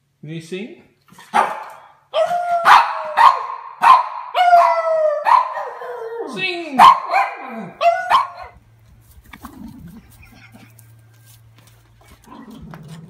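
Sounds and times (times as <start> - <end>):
dog howling: 2.1 - 3.5, 4.3 - 8.6
faint low hum: 4.4 - 13.0.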